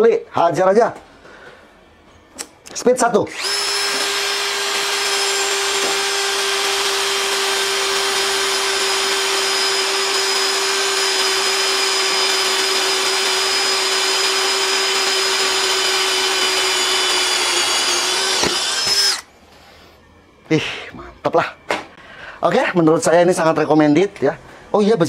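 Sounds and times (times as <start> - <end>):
cordless drill whining through steel: 3.3 - 19.3.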